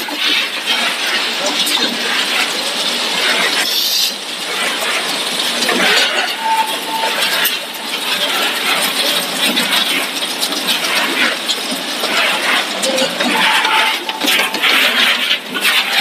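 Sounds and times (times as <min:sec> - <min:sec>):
short steady tone: 0:12.8 - 0:15.3.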